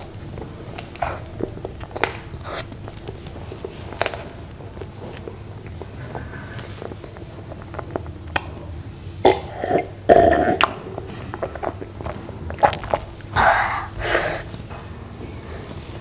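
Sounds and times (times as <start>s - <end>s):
wet mouth clicks: 7.1s - 8.6s, 9.2s - 14.1s
person gulping water: 9.2s - 14.4s
breathy exhales: 13.4s - 14.5s.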